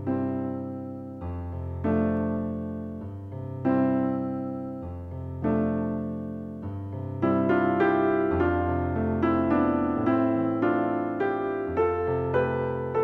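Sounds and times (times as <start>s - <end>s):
slow piano chords: 0.0s - 13.0s.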